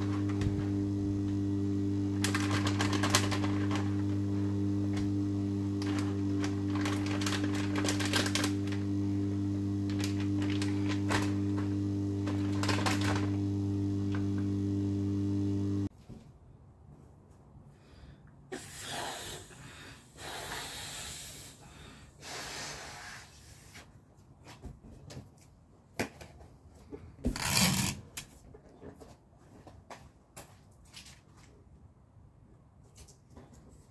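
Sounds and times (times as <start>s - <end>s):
low hum with light clicks: 0.0s - 15.9s
person blowing up balloon: 18.5s - 23.6s
rubbery balloon rubbing: 27.3s - 28.1s.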